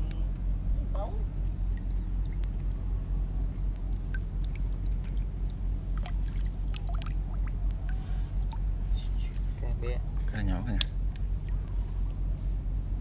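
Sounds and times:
water sloshing and trickling: 0.0 - 12.9
water dripping: 1.2 - 9.7.

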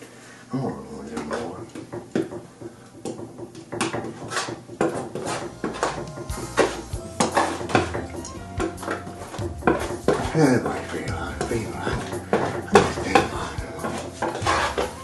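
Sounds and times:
palette knife scraping canvas: 4.2 - 7.9, 8.9 - 11.1, 13.8 - 15.0.

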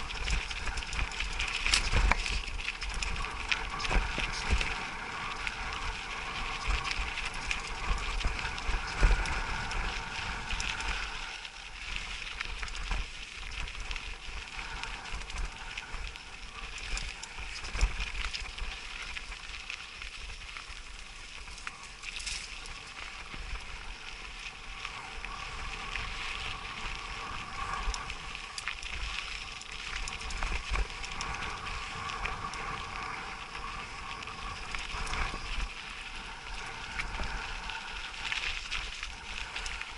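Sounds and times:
steady high hiss: 0.0 - 39.9.

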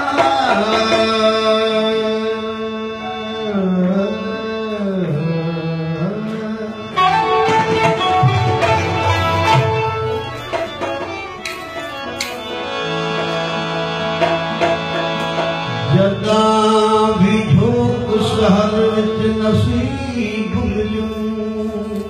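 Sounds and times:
man singing: 0.0 - 8.0, 15.7 - 22.0
stringed instruments playing: 0.0 - 22.0.

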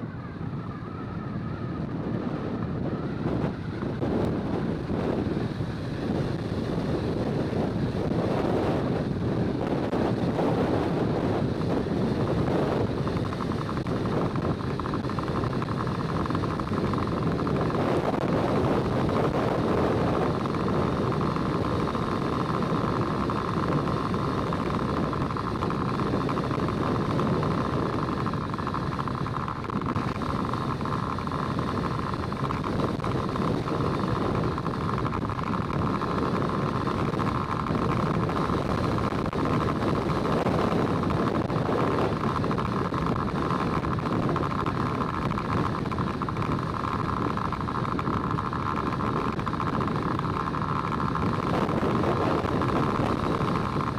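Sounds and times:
road rumble and engine: 0.0 - 53.9
steady high whine: 0.0 - 53.9.

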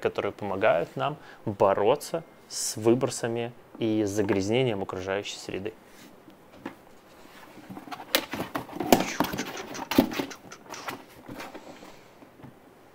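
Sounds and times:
plastic carrier rustling: 6.6 - 12.0.

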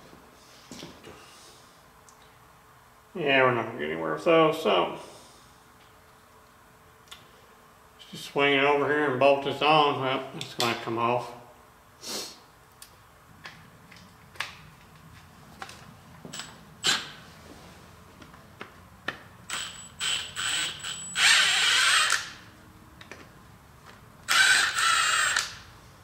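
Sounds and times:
power tool running with whine: 19.5 - 22.3, 24.3 - 25.6.

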